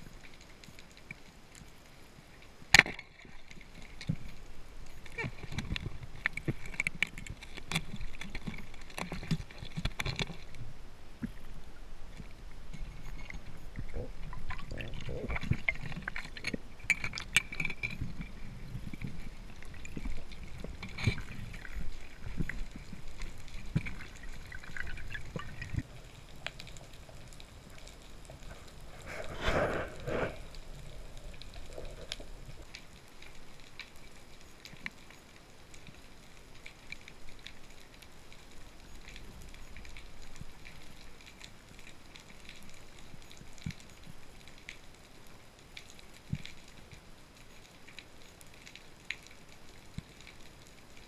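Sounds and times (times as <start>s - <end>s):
water moving and bubbling underwater: 0.0s - 51.0s
small clicks: 2.7s - 10.6s.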